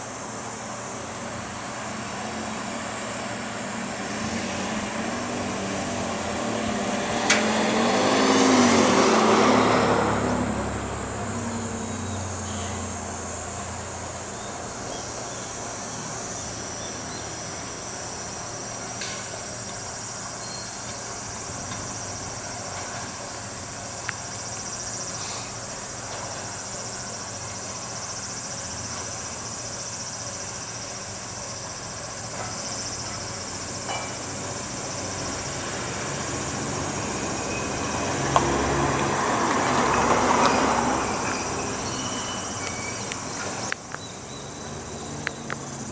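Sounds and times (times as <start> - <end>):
diesel railcar idling: 0.0 - 7.5, 10.3 - 45.9
engine with wavering pitch: 0.0 - 17.9, 33.0 - 45.9
insects buzzing: 0.0 - 45.9.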